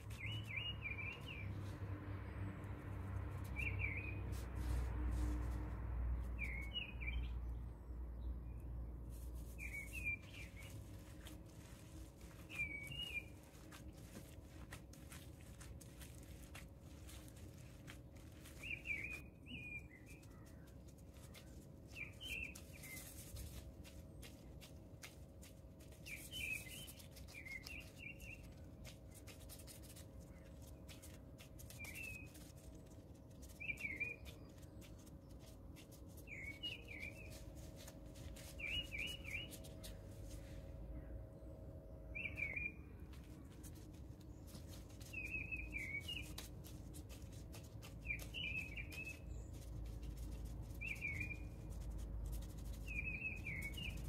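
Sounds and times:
small bird chirping: 0:00.0 - 0:02.4, 0:03.4 - 0:04.9, 0:06.2 - 0:15.5, 0:16.1 - 0:24.8, 0:26.0 - 0:32.7, 0:33.3 - 0:41.1, 0:42.1 - 0:54.0
soft clicks and squishes of mixture: 0:09.2 - 0:41.1.

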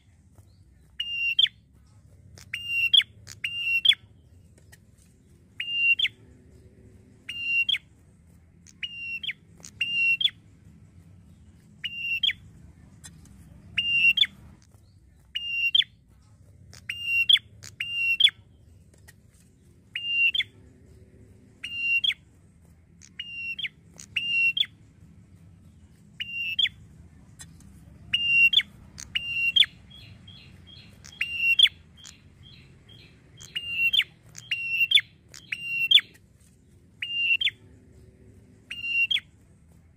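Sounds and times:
rapid ticking bird trill: 0:00.9 - 0:01.6, 0:02.2 - 0:04.8, 0:05.5 - 0:16.0, 0:16.6 - 0:18.8, 0:19.9 - 0:22.3, 0:23.0 - 0:36.2, 0:36.9 - 0:39.6
bird calling sharp high notes: 0:05.6 - 0:06.2, 0:07.3 - 0:07.9, 0:08.7 - 0:10.4, 0:11.8 - 0:12.4, 0:13.8 - 0:14.4, 0:20.0 - 0:20.5, 0:23.0 - 0:24.8, 0:26.2 - 0:26.8, 0:28.1 - 0:36.2, 0:37.0 - 0:37.6, 0:38.7 - 0:39.3.

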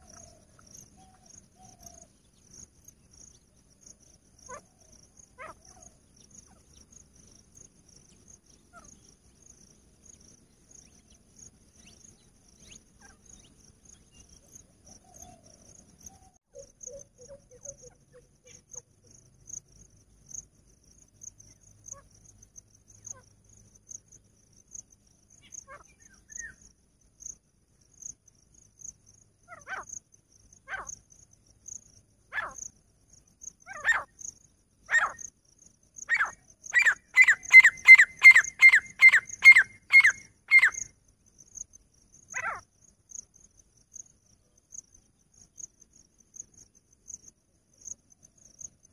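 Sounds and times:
pulsing insect trill: 0:00.0 - 0:48.9
francolin calling: 0:16.1 - 0:18.9, 0:32.3 - 0:32.7, 0:33.6 - 0:35.3, 0:36.0 - 0:40.9, 0:42.3 - 0:42.7.

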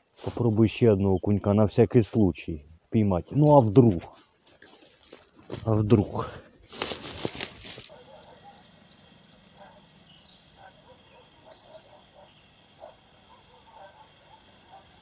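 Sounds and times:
rustling handling noise: 0:03.4 - 0:08.0
distant animal calls: 0:07.8 - 0:15.0.

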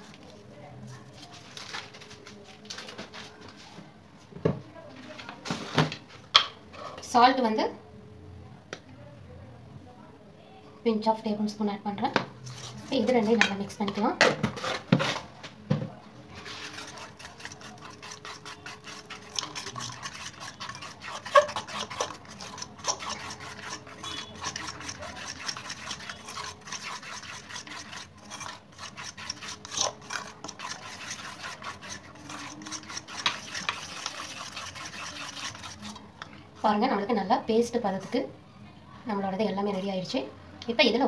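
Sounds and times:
batter stirred by hand in bowl: 0:00.0 - 0:03.7, 0:12.0 - 0:38.3.

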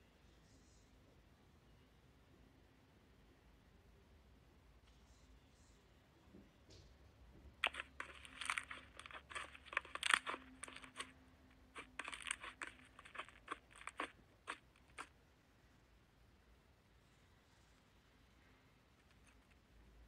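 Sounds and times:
slime crackling and popping: 0:07.6 - 0:11.1, 0:11.8 - 0:15.1.

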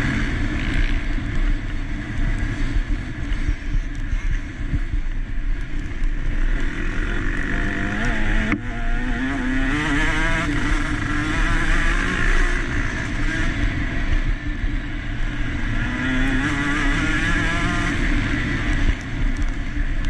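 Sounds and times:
motocross engine revving: 0:06.4 - 0:14.1, 0:15.3 - 0:18.7.

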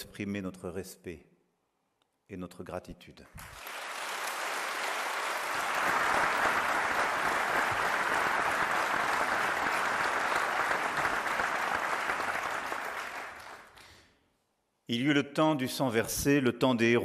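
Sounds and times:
large audience applauding: 0:03.4 - 0:14.0.

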